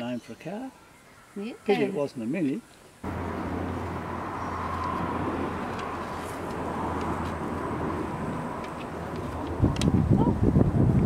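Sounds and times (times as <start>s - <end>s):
outdoor background noise: 0.0s - 11.0s
vehicle engine humming: 3.0s - 11.0s.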